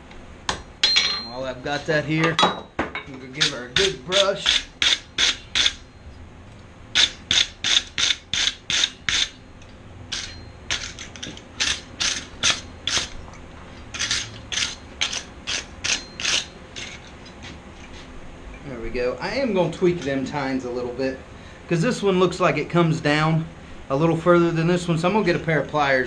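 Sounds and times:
wire brush scrubbing steel: 0:03.4 - 0:05.8.

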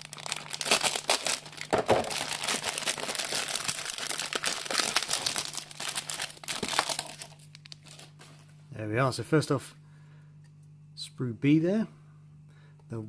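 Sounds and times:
plastic packaging crinkling: 0:00.0 - 0:08.4.

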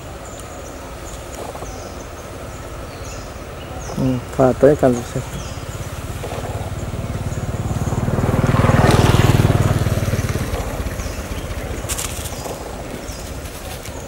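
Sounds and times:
vehicle engine passing by: 0:01.4 - 0:14.0.

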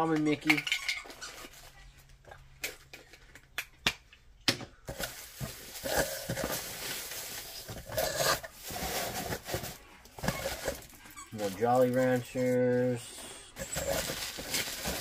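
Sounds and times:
paper shred rustling: 0:04.9 - 0:13.0, 0:13.6 - 0:15.0.

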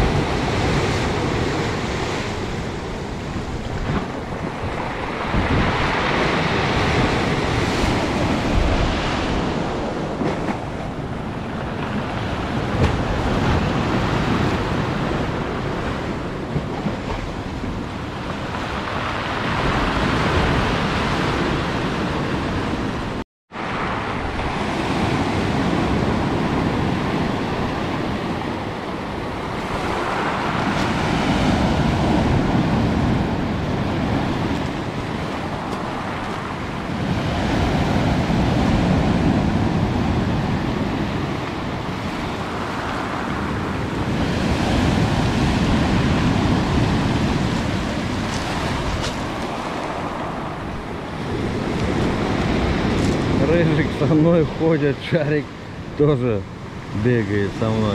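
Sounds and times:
surf washing over pebbles: 0:29.2 - 0:55.4.

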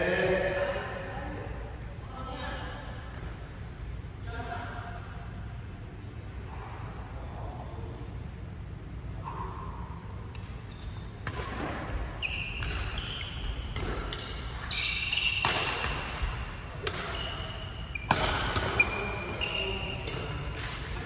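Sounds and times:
rackets hitting shuttlecock: 0:10.3 - 0:21.0
shoes squeaking on hall floor: 0:10.5 - 0:20.8.

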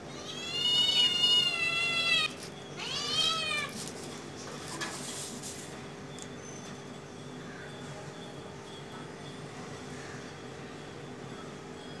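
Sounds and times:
cat meowing: 0:00.1 - 0:03.8.

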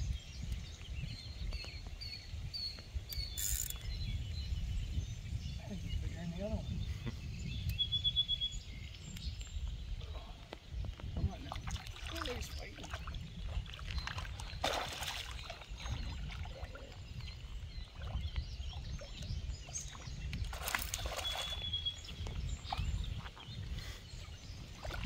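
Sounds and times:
river water sloshing at bank: 0:10.5 - 0:25.0
fish splashing: 0:11.6 - 0:16.9, 0:20.5 - 0:21.6.

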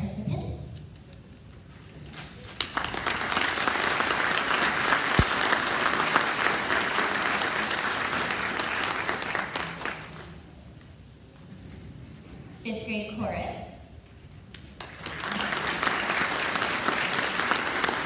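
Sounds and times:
audience applauding: 0:02.2 - 0:10.4, 0:14.8 - 0:18.0.

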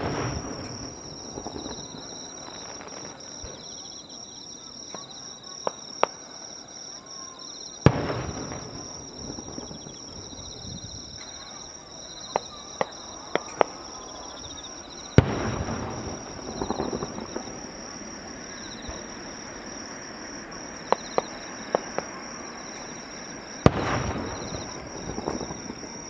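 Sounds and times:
small sharp firework pops: 0:00.0 - 0:03.8, 0:04.9 - 0:06.2, 0:07.8 - 0:09.9, 0:12.2 - 0:13.8, 0:15.1 - 0:17.7, 0:20.9 - 0:23.0, 0:23.6 - 0:26.0
crickets chirring: 0:00.0 - 0:26.0
fireworks crackling: 0:00.0 - 0:26.0.

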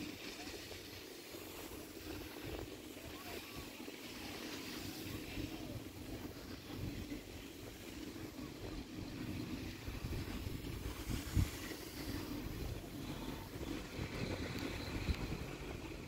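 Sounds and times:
chairlift low rumble: 0:00.0 - 0:16.0
wind on microphone: 0:08.6 - 0:16.0.

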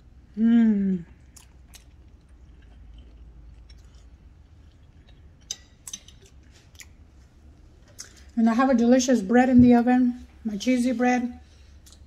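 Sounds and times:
faint chewing: 0:01.0 - 0:08.4.

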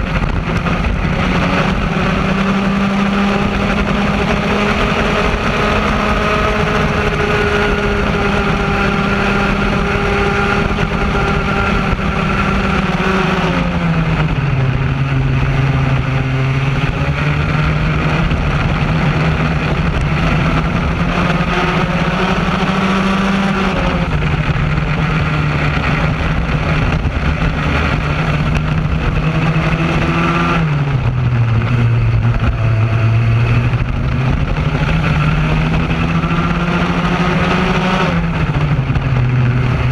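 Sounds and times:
kart engine revving: 0:00.0 - 0:39.9.

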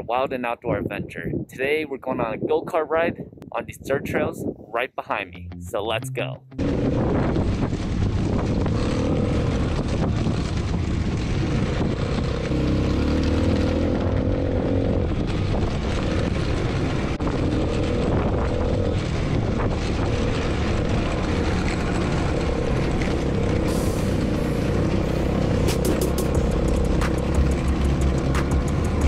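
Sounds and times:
go-kart engine running: 0:06.6 - 0:29.0.

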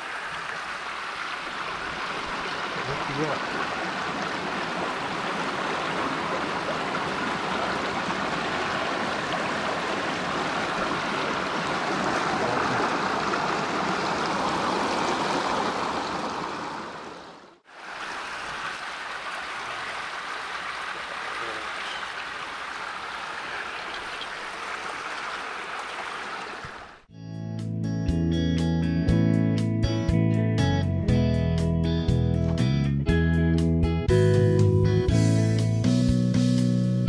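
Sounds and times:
creek water rushing over rocks: 0:00.0 - 0:27.1.

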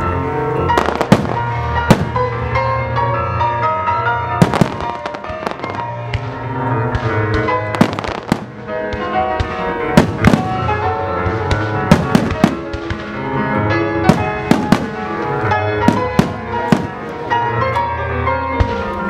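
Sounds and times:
classical music: 0:00.0 - 0:19.0
firework shells bursting: 0:04.4 - 0:06.3, 0:14.1 - 0:15.2.

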